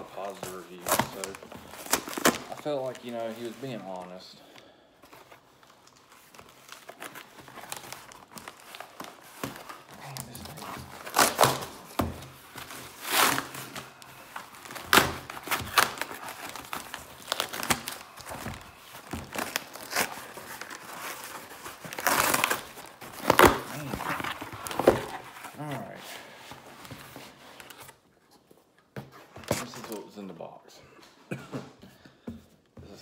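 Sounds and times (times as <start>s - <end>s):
cardboard box tearing: 0.2s - 2.8s, 6.7s - 26.0s.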